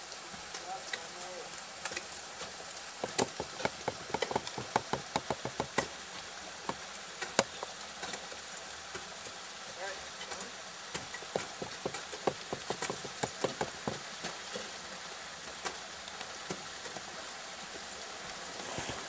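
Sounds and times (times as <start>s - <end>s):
steady hiss: 0.0s - 19.0s
ice axe chipping into ice: 3.0s - 5.9s, 11.0s - 14.0s.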